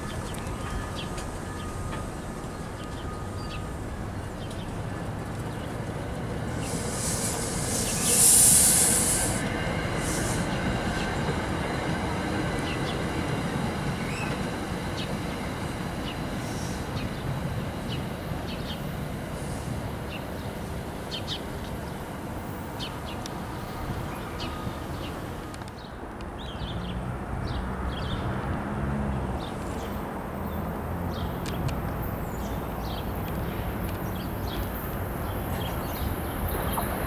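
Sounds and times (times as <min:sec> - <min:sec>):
train wheels rumbling on track: 0:00.0 - 0:37.0
high hiss or squeal: 0:06.6 - 0:10.6.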